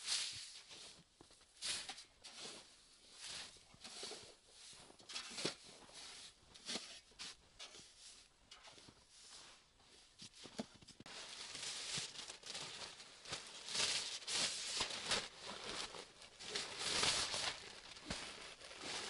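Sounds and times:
padded mat rustling and crinkling: 8.7s - 19.0s.

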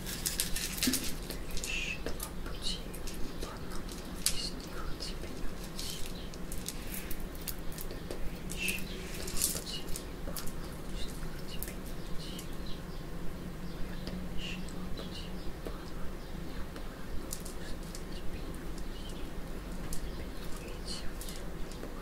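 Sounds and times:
bird chirps: 7.9s - 16.7s.

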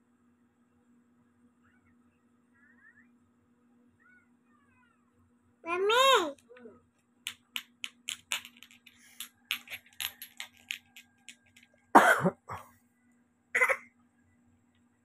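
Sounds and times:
person coughing: 12.0s - 12.7s, 13.6s - 13.8s.

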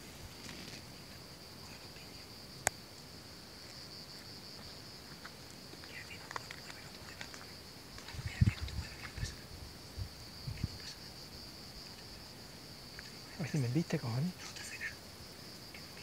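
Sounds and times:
insect chorus chirring: 0.0s - 16.0s
faint ticks: 1.6s - 3.8s, 4.6s - 9.4s, 12.9s - 13.7s.

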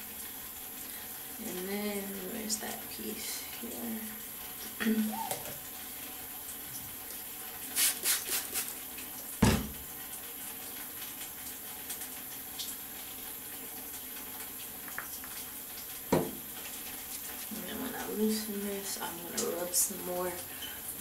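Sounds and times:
steady background hiss: 0.0s - 10.5s
hair rustling: 7.8s - 8.7s
thump: 9.4s - 9.8s, 16.1s - 16.4s.

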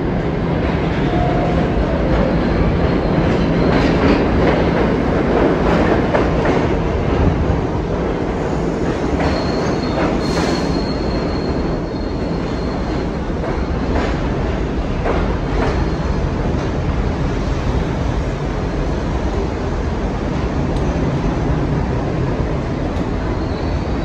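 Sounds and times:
subway train rumble: 0.0s - 24.0s
high wheel squeal: 9.2s - 13.1s.

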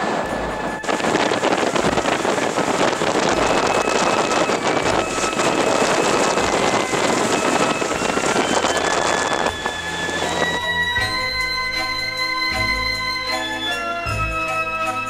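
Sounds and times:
wind buffeting microphone: 0.0s - 13.2s
faint held musical tones: 0.1s - 15.0s.

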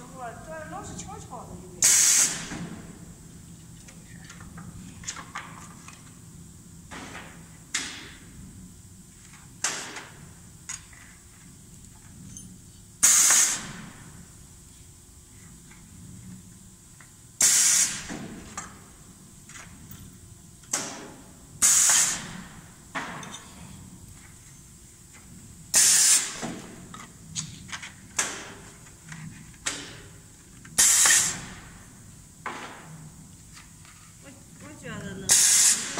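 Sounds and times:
machine press air hissing: 1.8s - 2.8s, 13.0s - 14.0s, 17.4s - 18.3s, 21.6s - 22.7s, 25.7s - 26.8s, 30.8s - 31.8s, 35.3s - 35.9s.

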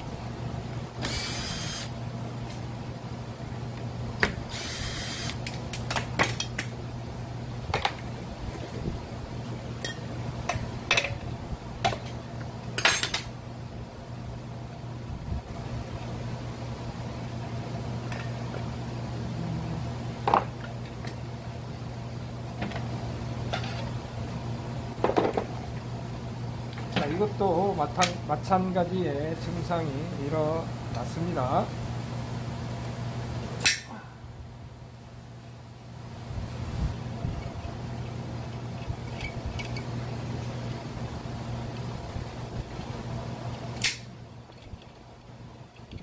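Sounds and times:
steady low hum: 0.0s - 46.0s
cordless drill running: 1.0s - 2.0s, 4.5s - 5.4s.

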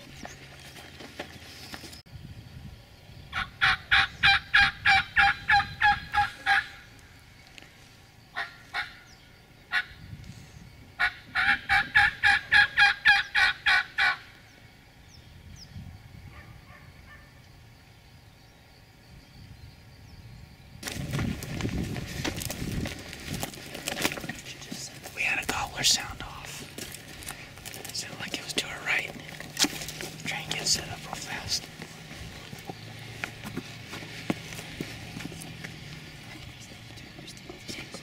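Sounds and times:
rustling noise: 0.0s - 2.0s, 20.8s - 38.0s
turkey call hen yelps: 3.3s - 6.8s, 11.0s - 14.3s.

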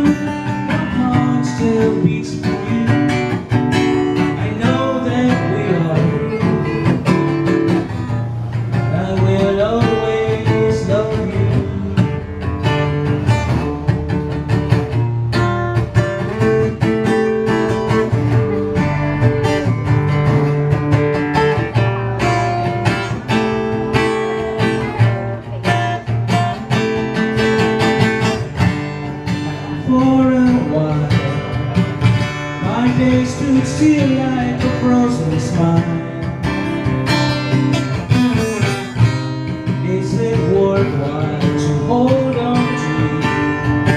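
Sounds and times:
strummed acoustic guitar ballad: 0.0s - 43.9s.

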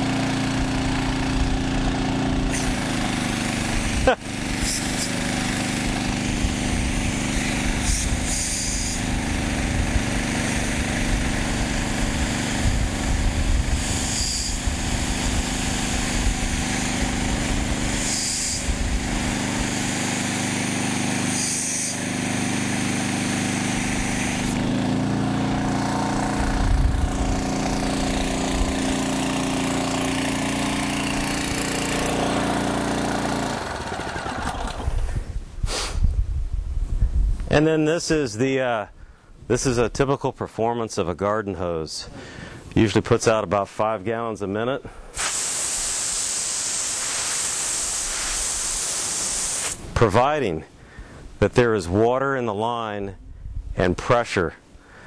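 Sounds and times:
small petrol engine running: 0.0s - 35.3s.

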